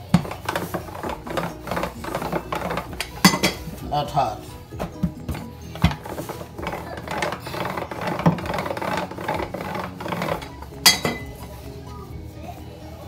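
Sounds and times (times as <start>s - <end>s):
hands kneading dough: 0.0s - 13.0s.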